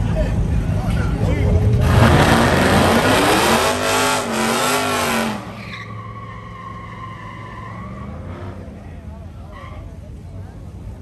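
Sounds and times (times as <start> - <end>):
loud rushing noise: 1.5 - 5.6
racing engine revving: 1.6 - 5.6.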